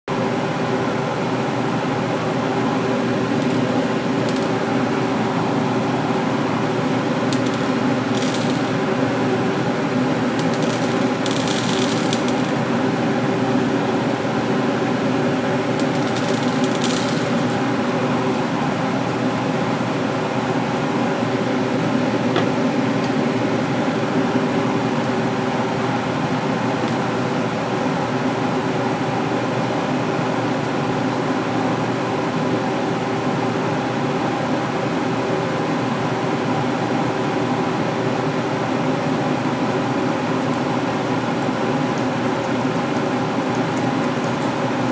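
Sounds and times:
machine hum: 0.1 - 44.9
popcorn kernels clattering on glass: 7.4 - 8.7, 10.4 - 12.5, 15.8 - 17.5.

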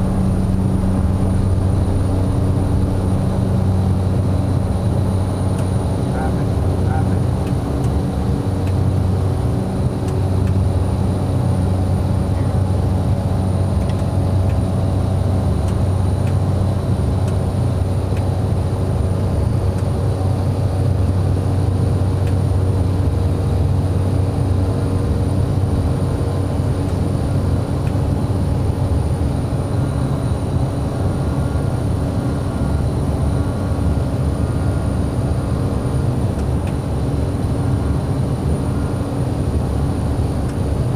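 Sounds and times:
high whine: 0.0 - 7.5
turboprop engine drone: 0.0 - 40.9.

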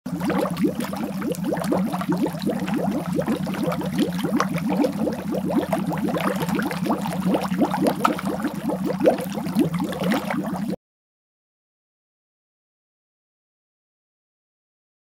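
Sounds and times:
water bubbling: 0.1 - 10.8.

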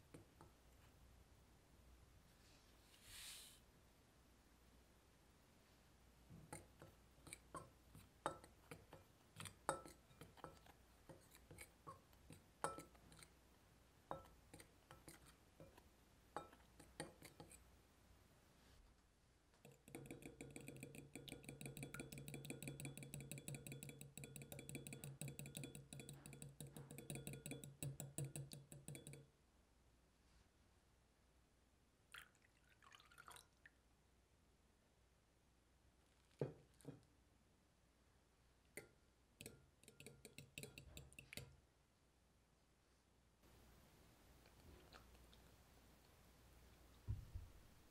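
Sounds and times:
spoon stirring in glass bowl: 6.3 - 13.4, 14.1 - 17.7, 19.6 - 29.3, 38.8 - 41.6
fork beating egg in glass bowl: 6.4 - 13.4, 14.1 - 17.7, 19.6 - 29.3, 38.8 - 41.6.

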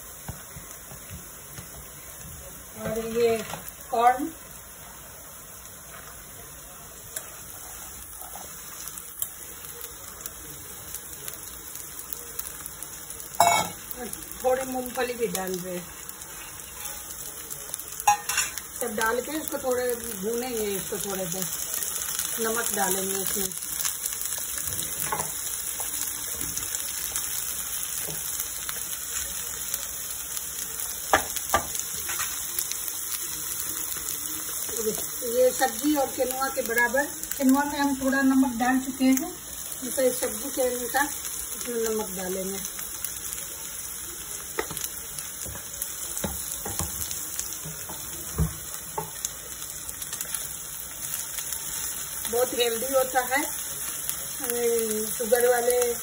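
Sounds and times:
vegetables sizzling in a pan: 0.0 - 56.0.

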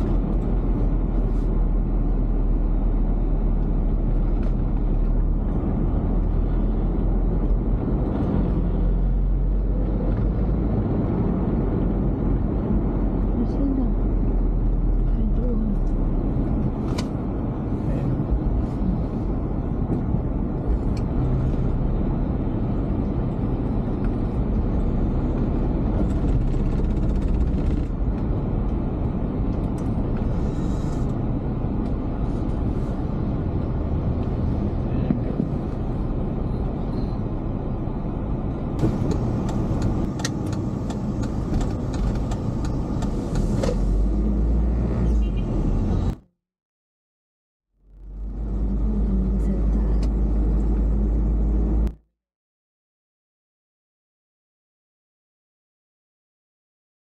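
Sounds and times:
car driving rumble: 0.0 - 46.3, 47.8 - 52.0
sharp clicks and rattles: 25.8 - 28.8.

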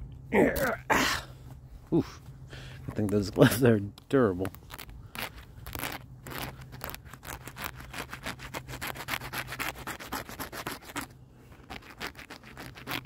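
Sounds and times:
glove rubbing on thorny stem: 4.2 - 13.0.

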